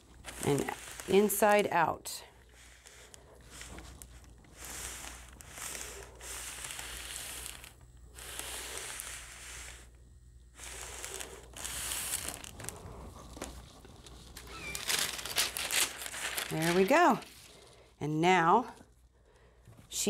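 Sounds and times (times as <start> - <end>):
sheet crinkling: 0.0 - 1.6, 10.7 - 17.8
iron sliding on fabric: 0.0 - 10.0.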